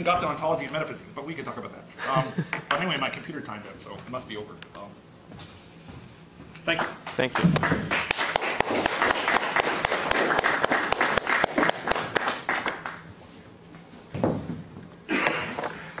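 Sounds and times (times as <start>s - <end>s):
audience applauding: 6.7s - 13.1s.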